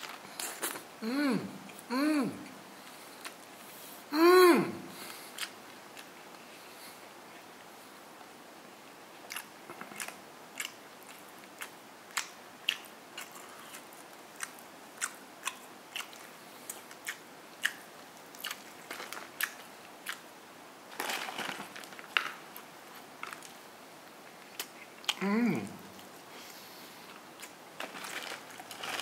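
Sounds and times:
crunching fried chicken: 9.2 - 20.3, 20.9 - 23.6, 27.1 - 29.0
rustling: 20.9 - 23.4, 27.8 - 29.0.

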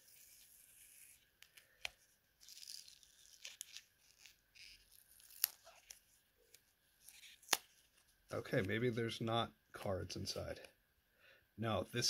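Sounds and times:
paper crinkling and tearing: 0.0 - 8.1.

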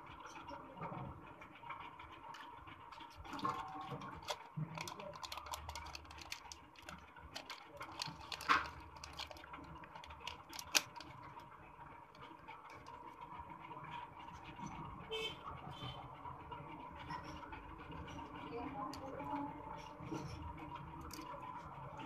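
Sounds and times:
plastic packaging crinkling: 2.9 - 11.5.

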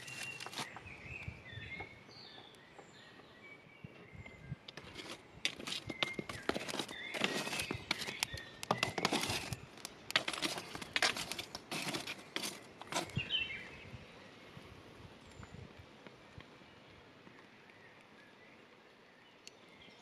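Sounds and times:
stick scraping through charcoal: 0.0 - 0.8, 4.7 - 13.3
charcoal lumps clinking: 4.8 - 13.2.

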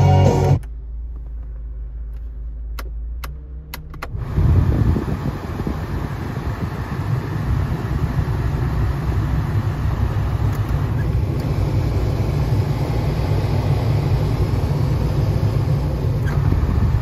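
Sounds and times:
car engine idling: 0.0 - 17.0
air-conditioning fan blowing: 4.2 - 17.0.

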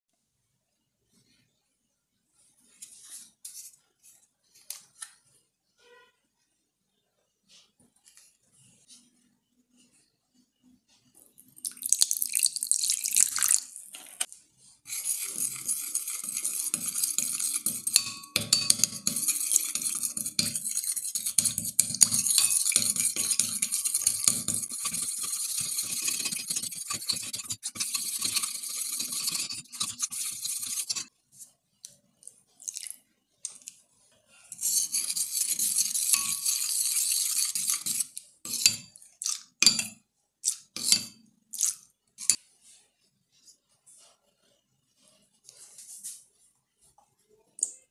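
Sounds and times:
plastic spoon stirring in glass bowl: 11.2 - 31.5, 34.5 - 42.8
water poured into glass bowl: 11.6 - 14.1.

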